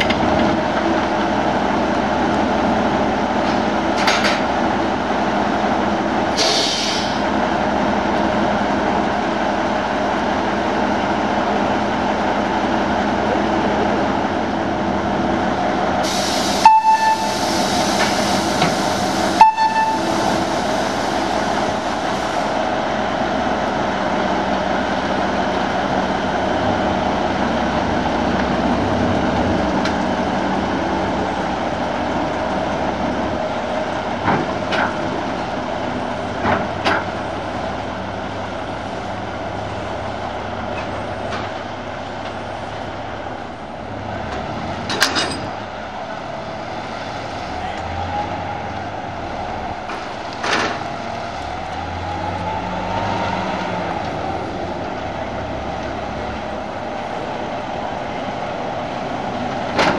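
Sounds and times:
diesel locomotive idling: 0.0s - 59.9s
air hiss: 6.4s - 7.2s, 16.0s - 19.4s, 20.1s - 22.6s
short horn toots: 16.6s - 17.4s, 19.4s - 20.2s.

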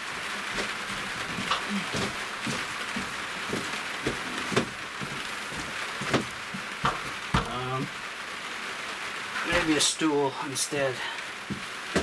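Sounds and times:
rain pattering on roof: 0.0s - 12.0s
stepladder knocks and clatters: 0.6s - 7.6s.

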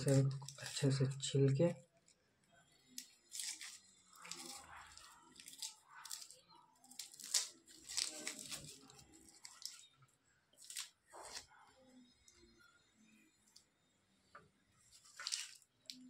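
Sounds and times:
onion skin crackling rustles: 2.8s - 9.9s, 10.6s - 11.6s, 14.9s - 16.0s.

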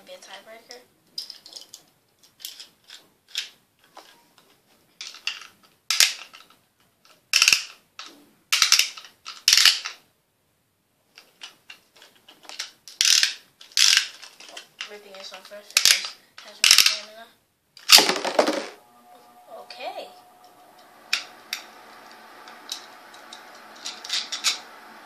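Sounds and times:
plastic launchers ratcheting: 7.3s - 10.0s, 11.2s - 14.6s, 15.8s - 17.0s.

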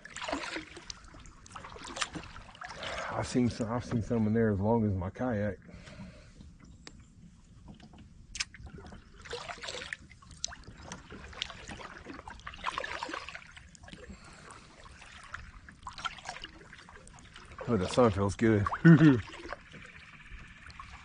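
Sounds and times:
paddle splashing through water: 0.0s - 3.3s, 7.7s - 21.0s
water dripping: 7.8s - 21.0s.

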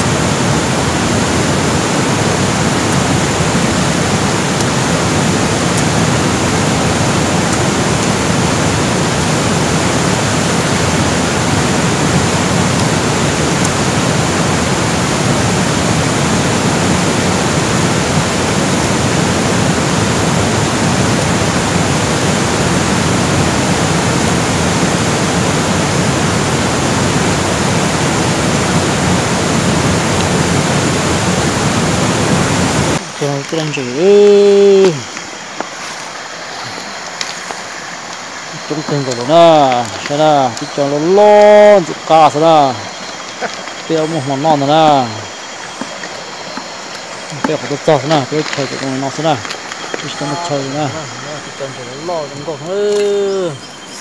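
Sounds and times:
rush of flowing water: 0.0s - 54.0s.

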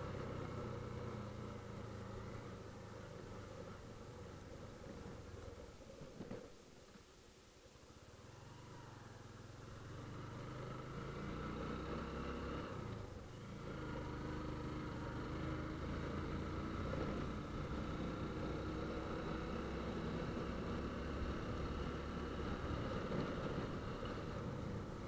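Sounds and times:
motorcycle engine accelerating: 0.0s - 5.4s, 8.2s - 25.0s.

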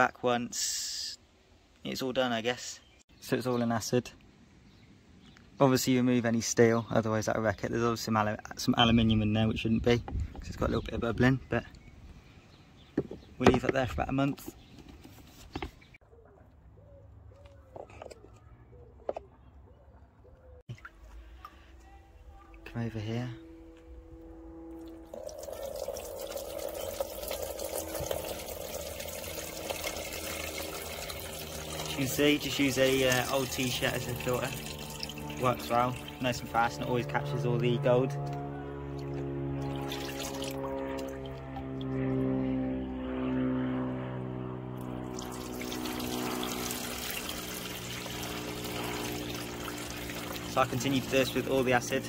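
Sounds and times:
liquid pouring into cloth: 24.8s - 36.2s, 39.6s - 41.3s, 45.0s - 51.3s.

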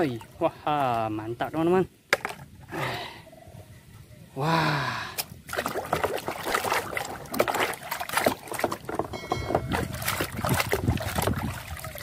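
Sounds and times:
water splashing in a basin: 5.4s - 12.0s.

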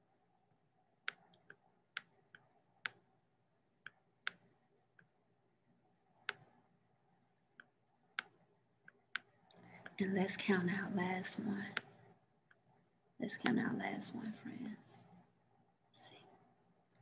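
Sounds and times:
computer mouse clicks: 1.0s - 3.1s, 3.8s - 5.1s, 6.2s - 6.6s, 7.6s - 10.0s, 11.6s - 12.7s.

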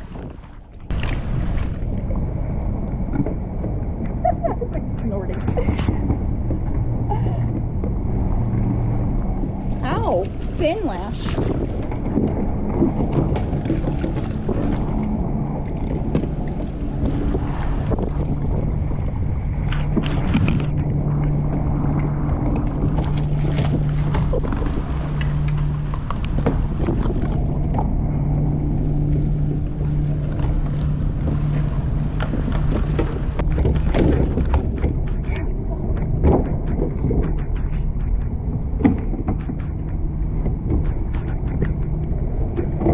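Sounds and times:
low engine drone: 0.0s - 42.9s
water around a kayak: 0.0s - 42.9s
wind: 0.0s - 42.9s
knocks and rubbing on kayak: 9.9s - 18.9s, 21.4s - 42.9s.

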